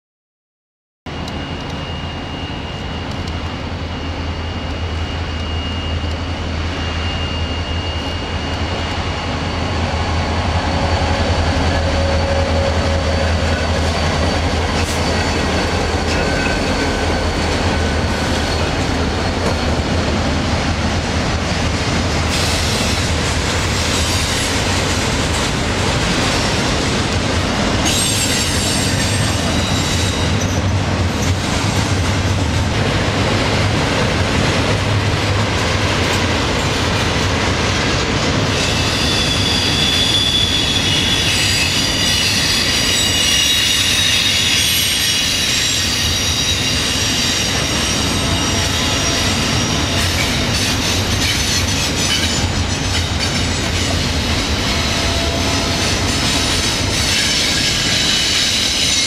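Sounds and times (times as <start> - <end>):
train cars rattling over rails: 1.1 - 59.0
wheel squeal: 1.2 - 17.1, 27.8 - 31.3, 38.5 - 54.0, 54.6 - 59.0.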